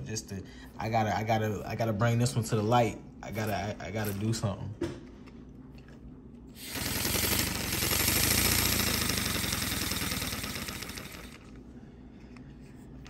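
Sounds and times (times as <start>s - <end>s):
paper engine rattling: 6.6s - 11.5s.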